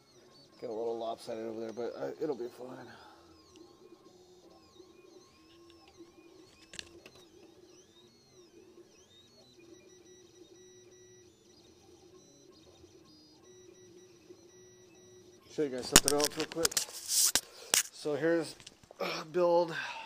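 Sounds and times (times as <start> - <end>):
stepper motors whining: 2.5 - 16.7.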